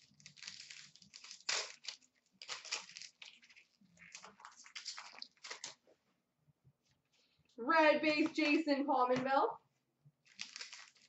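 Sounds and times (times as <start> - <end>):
cards rustling: 0.0 - 5.8, 10.2 - 11.0
pack wrapper crinkling: 0.0 - 5.9, 10.2 - 11.0.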